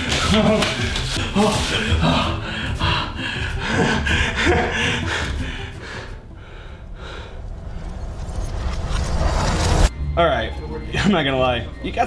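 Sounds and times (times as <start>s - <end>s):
heavy breathing: 0.8s - 8.1s.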